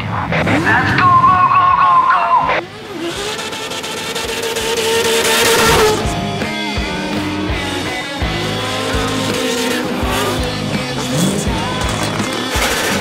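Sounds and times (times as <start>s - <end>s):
car engines revving: 0.0s - 13.0s
rock music with electric guitar: 4.0s - 13.0s.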